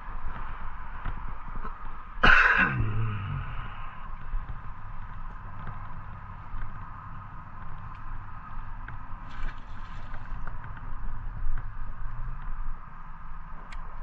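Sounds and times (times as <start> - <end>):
steady low rumble and hum: 0.0 - 14.0
water splashing at shoreline: 9.2 - 10.4.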